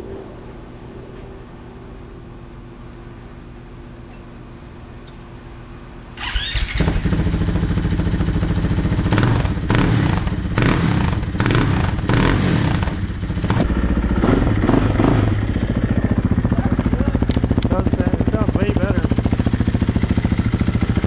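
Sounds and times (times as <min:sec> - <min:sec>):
electric starter whine: 0:06.2 - 0:07.2
motorcycle engine revving and idling: 0:06.2 - 0:21.0.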